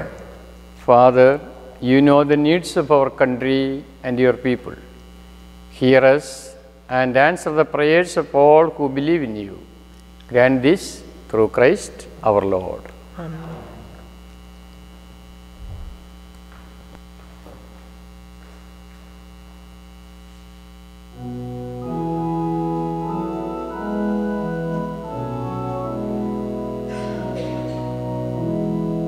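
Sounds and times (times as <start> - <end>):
organ playing slow chords: 0.0 - 17.2, 21.0 - 29.0
mains hum: 0.0 - 29.0.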